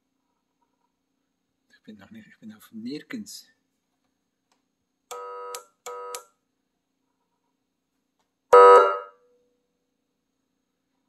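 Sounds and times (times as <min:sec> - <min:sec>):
buzzy siren horn blasts: 0:08.5 - 0:09.1.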